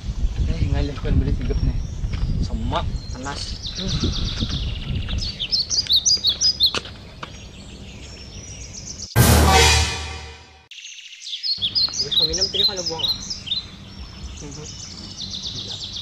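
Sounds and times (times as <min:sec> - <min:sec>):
birds chirping: 0:01.4 - 0:09.2, 0:10.7 - 0:16.0
musical hit with held chord: 0:09.2 - 0:10.7.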